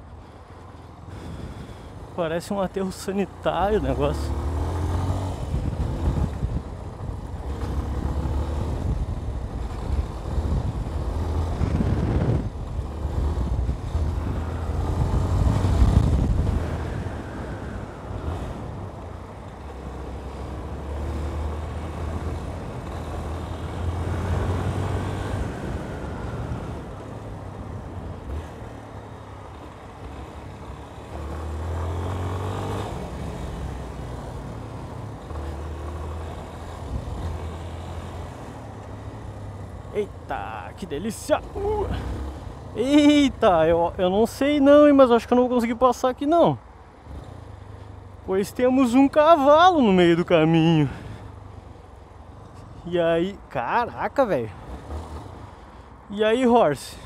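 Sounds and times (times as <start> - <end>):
motorcycle engine revving: 3.9 - 6.6, 7.3 - 16.9.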